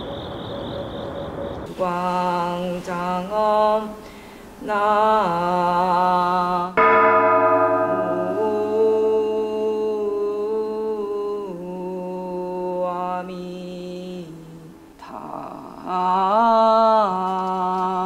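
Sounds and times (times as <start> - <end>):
bell ringing: 6.8 - 9.7
person chanting long notes: 6.8 - 10.3.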